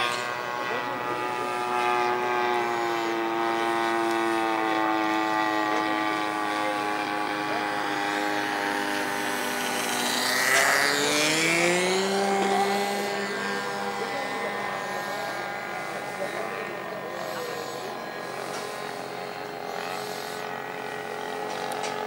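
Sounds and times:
model airplane engine droning: 0:00.0 - 0:22.0.

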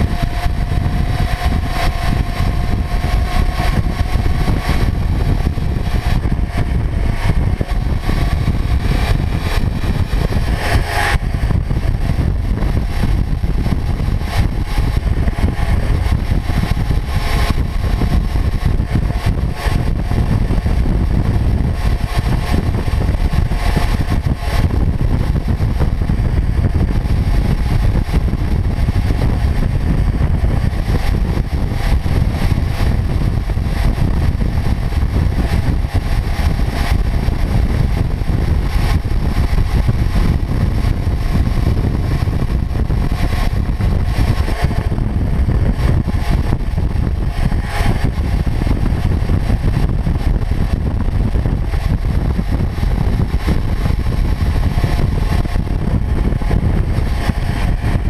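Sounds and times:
motorcycle cruising: 0:00.0 - 0:58.0.

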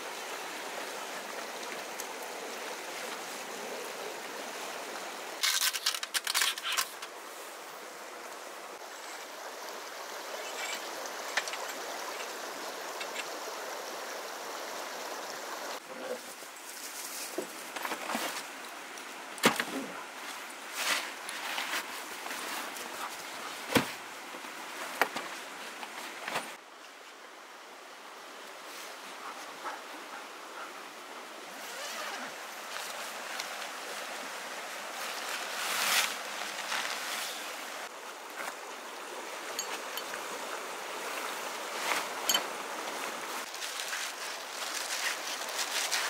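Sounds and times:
stream rushing: 0:00.0 - 0:05.4, 0:06.7 - 0:15.8, 0:18.3 - 0:46.0
tent fabric rustling: 0:19.4 - 0:26.6, 0:31.6 - 0:38.5, 0:41.0 - 0:46.0.

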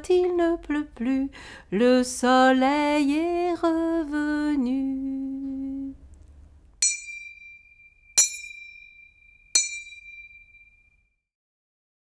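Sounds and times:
small metal chime ringing: 0:06.8 - 0:11.0.

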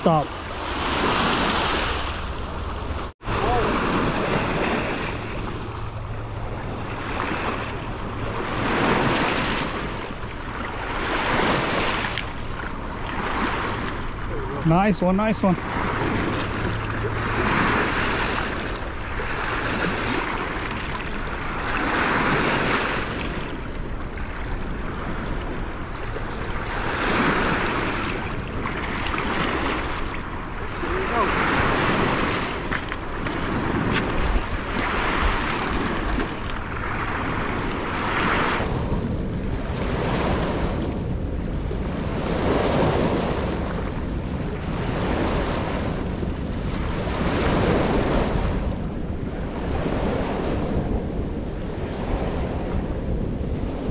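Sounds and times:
river water washing against rocks: 0:00.0 - 0:38.6
wind buffeting microphone: 0:00.0 - 0:53.9.

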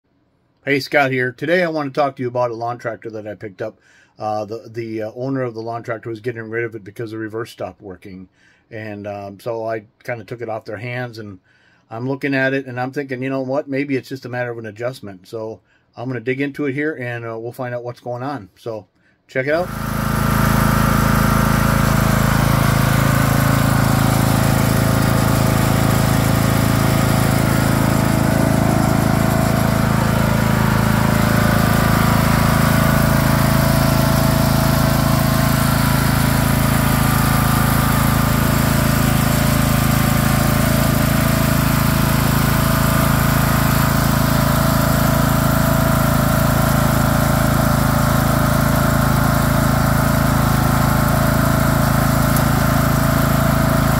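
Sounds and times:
lawn tractor engine running: 0:19.6 - 0:53.9.

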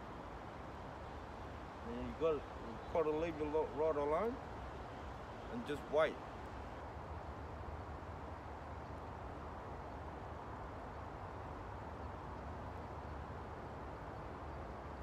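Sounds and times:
low rumbling outdoor noise: 0:00.0 - 0:15.0.

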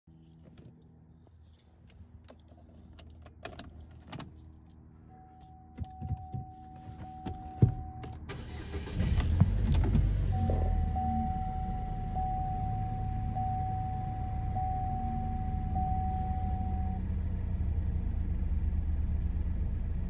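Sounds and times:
car engine cranking and running: 0:05.4 - 0:20.0
electronic warning tone: 0:10.3 - 0:17.0.

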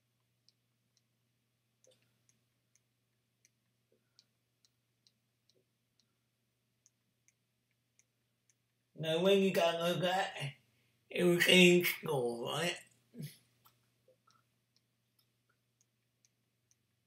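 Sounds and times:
soft irregular ticks: 0:00.0 - 0:09.0, 0:12.8 - 0:17.0
faint room hum: 0:00.0 - 0:17.0.

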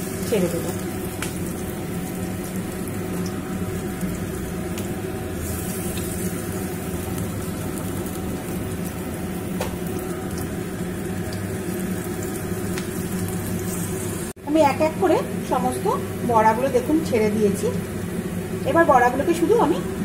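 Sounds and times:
oil sizzling in frying pan: 0:00.0 - 0:14.8.

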